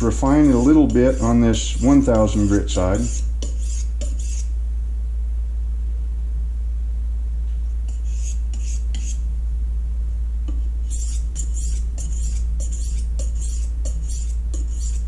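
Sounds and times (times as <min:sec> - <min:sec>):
low hum: 0:00.0 - 0:15.0
knife scraping on sharpening stone: 0:00.2 - 0:04.5, 0:07.9 - 0:09.2, 0:10.9 - 0:15.0.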